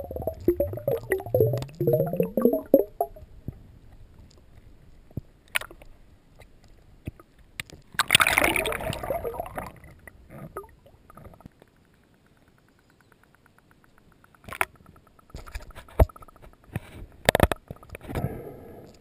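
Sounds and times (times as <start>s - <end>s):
underwater water gurgling: 0.0s - 3.3s, 8.0s - 11.4s
clicks: 11.1s - 18.0s.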